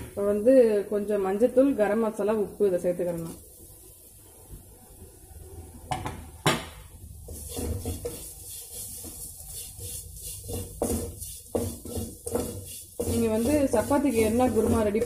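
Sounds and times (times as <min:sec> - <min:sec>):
spatula scraping a pan: 0:07.2 - 0:15.0.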